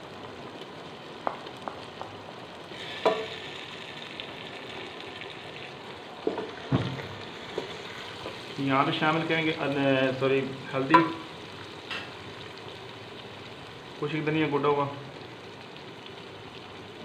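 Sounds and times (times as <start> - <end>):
masala sizzling in oil: 0.0 - 17.0.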